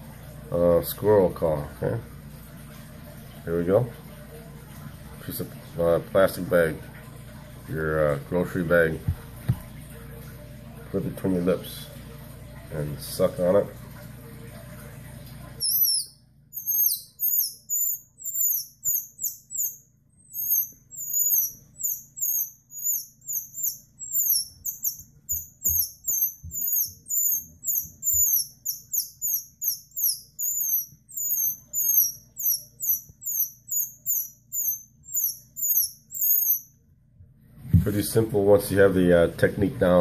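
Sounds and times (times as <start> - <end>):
high-pitched squeaks through plastic: 15.6 - 34.0.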